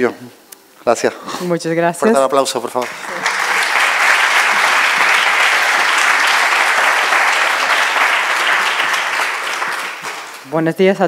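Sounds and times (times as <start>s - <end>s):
audience applauding: 2.7s - 10.6s.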